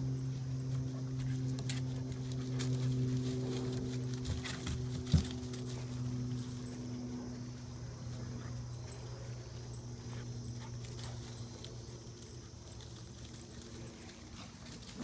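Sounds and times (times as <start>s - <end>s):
steady low hum: 0.0s - 15.0s
dog paws crunching dry leaves: 1.4s - 7.1s, 10.3s - 15.0s.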